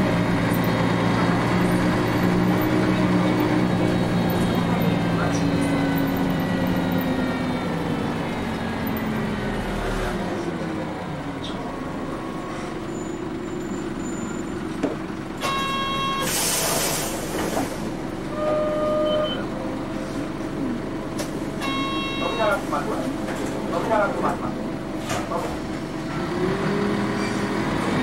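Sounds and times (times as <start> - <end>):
bus diesel engine running: 0.0 - 28.0
air hiss burst: 16.2 - 17.8.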